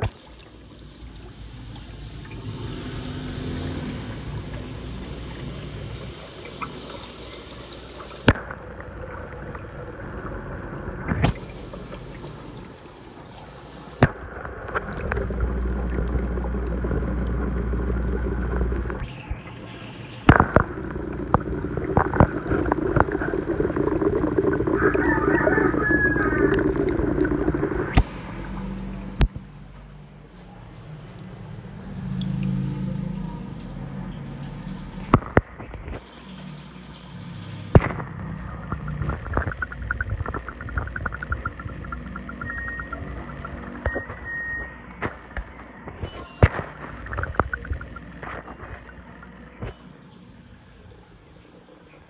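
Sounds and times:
water bubbling and trickling: 0.0 - 51.5
steady low hum: 0.0 - 52.0
low rumble: 14.1 - 36.0, 36.9 - 45.5.

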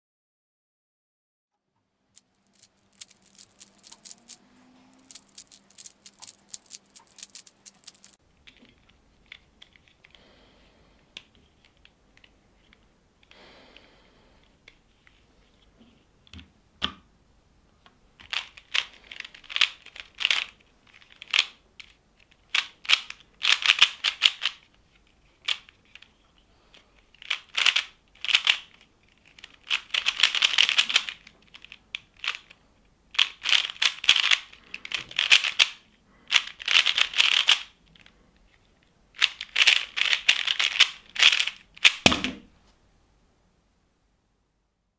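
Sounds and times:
puzzle cube clicking and rattling: 2.2 - 10.2, 18.2 - 24.7, 25.3 - 38.2, 39.1 - 42.2.

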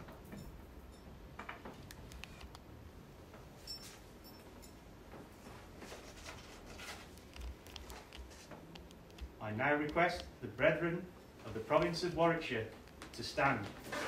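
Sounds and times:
faint handling clicks and knocks: 6.8 - 10.4.

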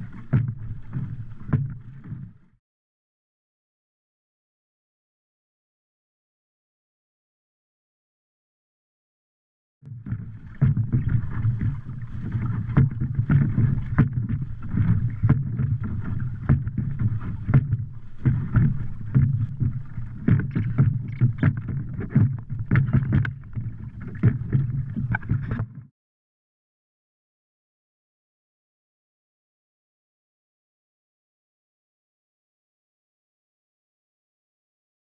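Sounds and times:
water sloshing and splashing: 0.0 - 2.6, 9.9 - 25.9
knocks on wooden boat: 9.9 - 11.8, 12.4 - 25.8
steady low rumble: 9.9 - 25.6.

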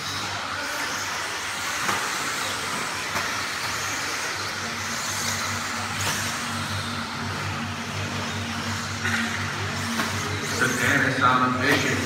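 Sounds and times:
rc car motor whine: 0.0 - 12.0
low hum: 4.6 - 12.0.

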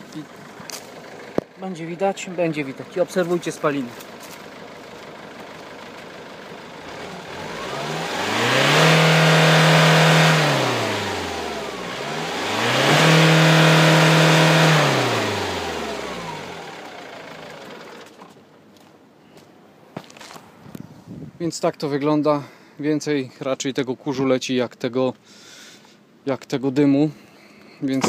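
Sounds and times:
diesel engine revving: 0.0 - 18.2.

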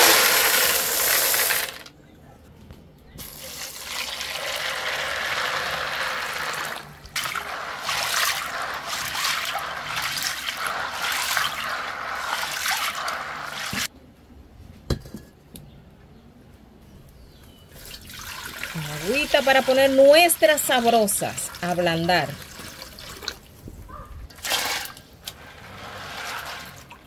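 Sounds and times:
water pouring and splashing: 3.2 - 13.9, 17.8 - 23.6, 24.3 - 27.0.

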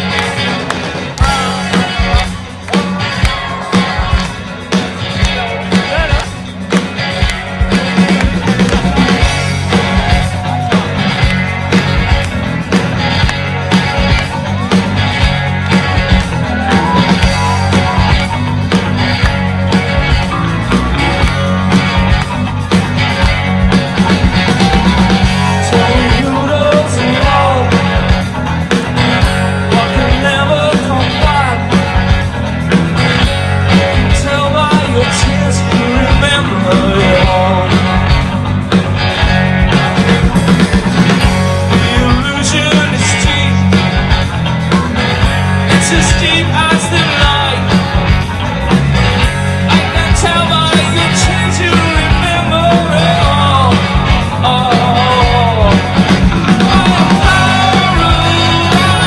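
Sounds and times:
live rock band: 0.0 - 59.0
man singing: 1.1 - 4.2, 5.1 - 6.4, 25.2 - 28.3, 29.5 - 31.9, 33.8 - 38.3, 41.6 - 43.9, 45.7 - 47.8, 49.7 - 59.0.

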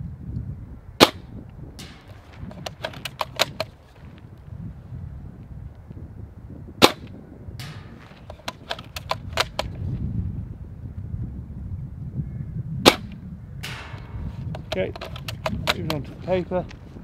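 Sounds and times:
airsoft rifle shots: 1.0 - 3.8, 6.8 - 9.8, 12.8 - 16.1
rifle bolt rattling and clicking: 1.8 - 4.2, 7.6 - 9.8, 13.7 - 16.3.

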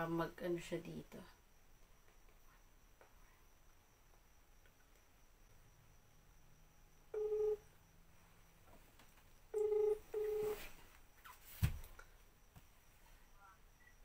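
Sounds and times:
phone ringback beeps: 7.2 - 7.6, 9.6 - 10.6.

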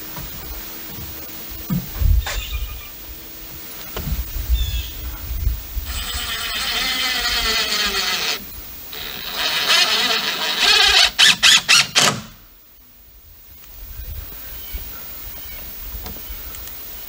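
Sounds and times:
cordless drill driving a screw: 5.9 - 12.4.

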